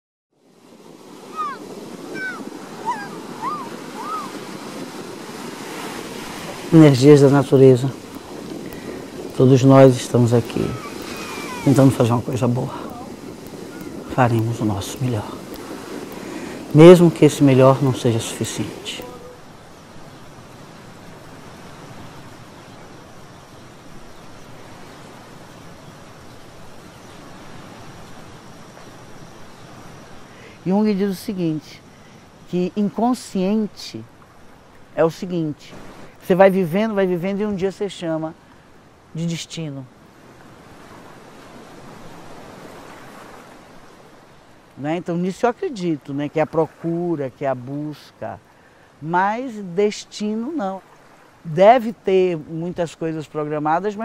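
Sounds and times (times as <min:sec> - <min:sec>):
shallow water flowing: 0:00.4 - 0:54.0
surf breaking over rocks: 0:00.5 - 0:22.9
short whistled calls: 0:01.3 - 0:04.6, 0:10.6 - 0:12.0.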